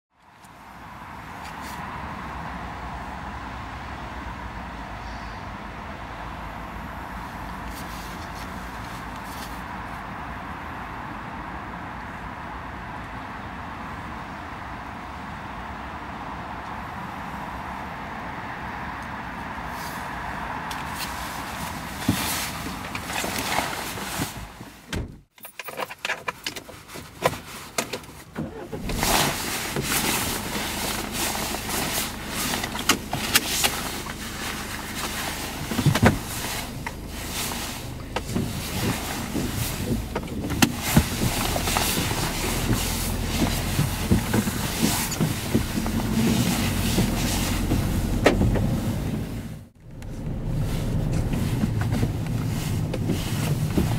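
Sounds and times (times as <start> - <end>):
van engine running: 2.0 - 18.8, 28.4 - 53.9
car door clicks and knocks: 24.9 - 25.2, 47.7 - 48.8.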